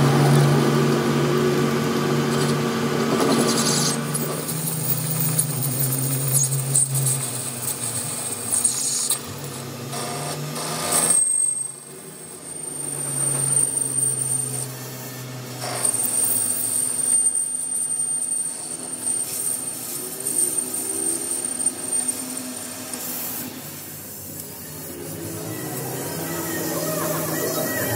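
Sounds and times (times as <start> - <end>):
lathe motor humming: 0.0 - 11.1, 11.7 - 27.9
high-pitched whine: 0.0 - 27.9
cutting tool scraping steel: 2.3 - 27.9.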